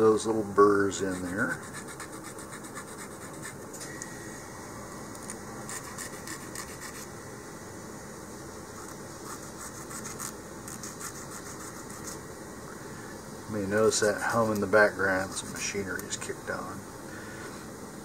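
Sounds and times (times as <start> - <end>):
hobby file scraping: 1.0 - 3.6, 5.7 - 7.1, 8.8 - 12.2, 14.3 - 16.1.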